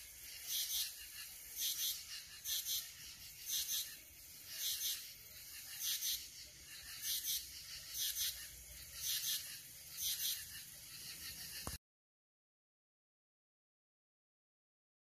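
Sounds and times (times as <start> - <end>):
insect raspy double chirp: 0.0 - 11.8.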